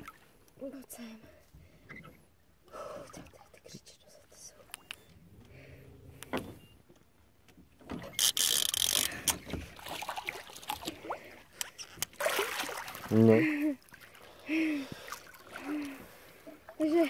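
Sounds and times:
water splashing beside boat hull: 0:07.6 - 0:17.0.

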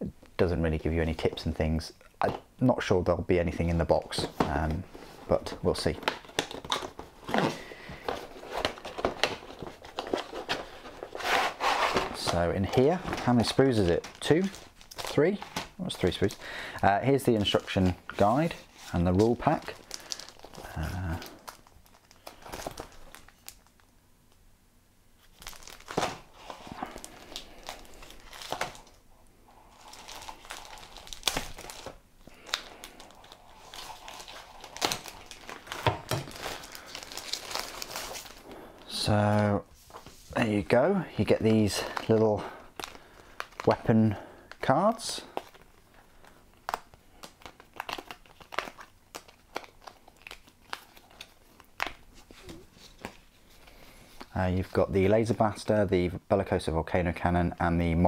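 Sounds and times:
plastic packaging crinkling and tearing: 0:04.8 - 0:23.9, 0:25.2 - 0:29.0, 0:29.6 - 0:39.1, 0:41.2 - 0:54.9.

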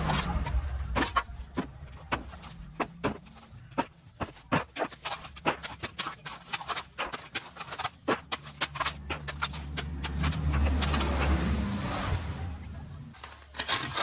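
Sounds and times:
low rumble: 0:00.0 - 0:03.7
steel bar striking concrete: 0:13.2 - 0:14.0.

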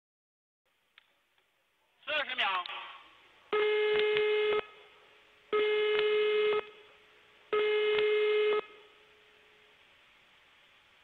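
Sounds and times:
long steady beeps: 0:03.5 - 0:04.8, 0:05.5 - 0:06.8, 0:07.5 - 0:08.9.

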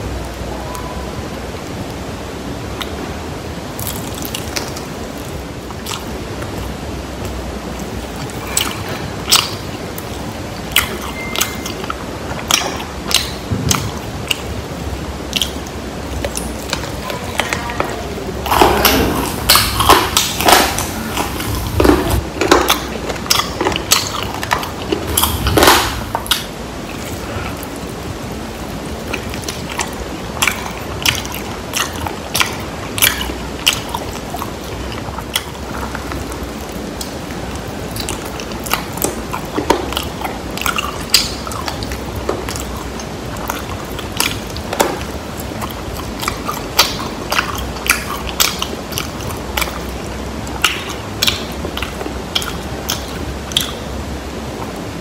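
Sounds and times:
steady background hiss: 0:00.0 - 0:55.0
crunching fried chicken: 0:03.7 - 0:14.6.

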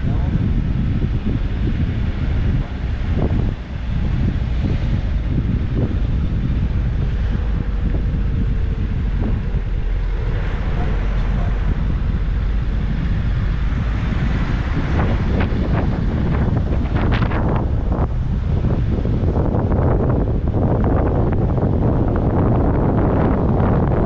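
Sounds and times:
car and road rumble: 0:00.0 - 0:24.0
wind buffeting microphone: 0:00.0 - 0:24.0.

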